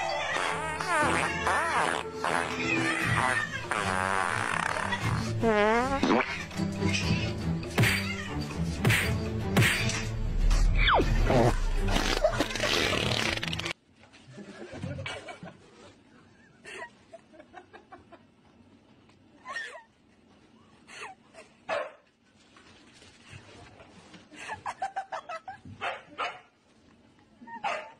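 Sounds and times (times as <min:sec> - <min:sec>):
loud stretching sound: 0:10.7 - 0:13.8.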